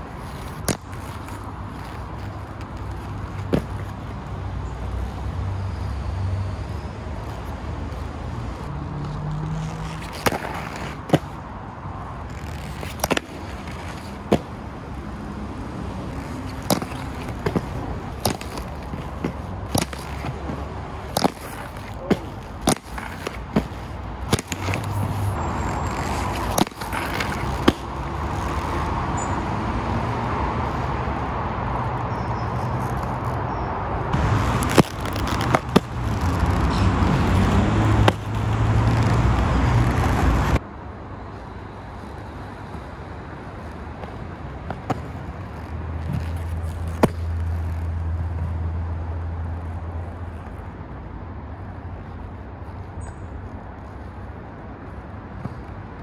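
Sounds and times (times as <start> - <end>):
skate wheels rolling on concrete: 0.0 - 56.0
skates clacking on ledges: 0.2 - 4.0, 9.6 - 11.4, 12.3 - 14.6, 16.1 - 25.2, 26.0 - 28.7, 34.4 - 40.6, 44.0 - 48.0.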